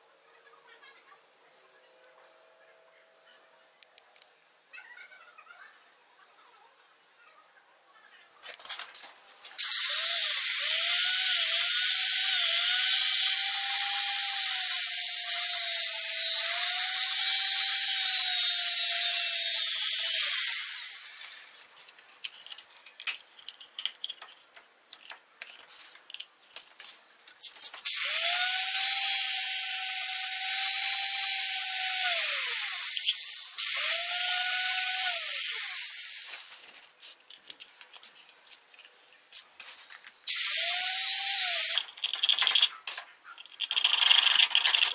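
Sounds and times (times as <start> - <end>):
angle grinder cutting plastic: 9.5 - 21.9, 27.6 - 37.3, 40.2 - 44.9.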